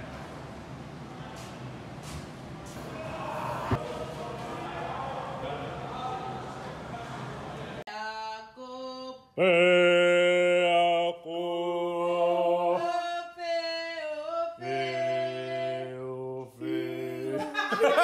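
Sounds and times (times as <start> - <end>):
people singing long held notes: 7.9 - 18.0.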